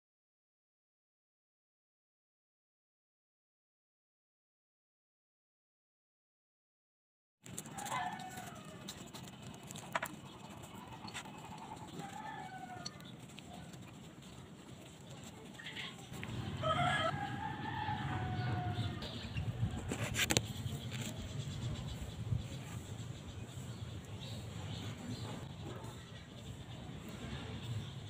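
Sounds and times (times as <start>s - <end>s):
rooster crowing: 7.7s - 8.9s, 12.0s - 13.0s, 16.6s - 19.1s
chickens clucking: 7.8s - 17.2s.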